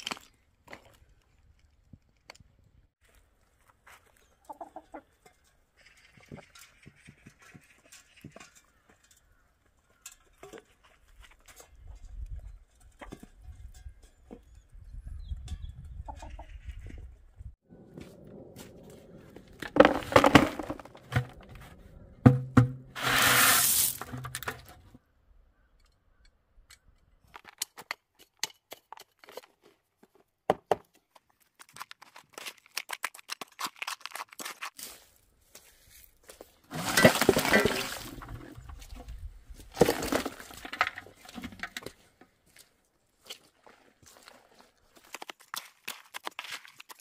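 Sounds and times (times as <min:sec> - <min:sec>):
knocks against basin: 0:22.3 - 0:22.9
shovel scraping dry soil: 0:22.9 - 0:24.7, 0:33.4 - 0:42.0
dry material pouring: 0:23.0 - 0:24.2.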